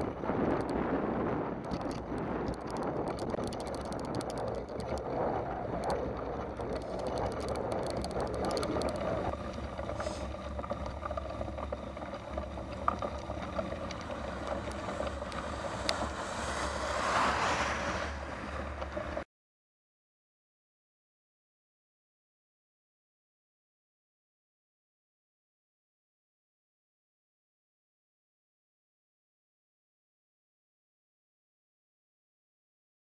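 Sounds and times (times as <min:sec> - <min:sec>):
wet tyres rolling on road: 0:00.0 - 0:19.3
wind: 0:00.0 - 0:19.3
clicks and rattles: 0:01.6 - 0:16.8.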